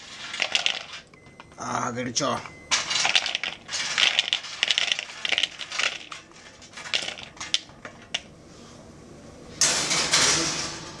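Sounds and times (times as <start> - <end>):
beans clattering into plastic bowl: 0.0 - 1.0, 2.7 - 8.3.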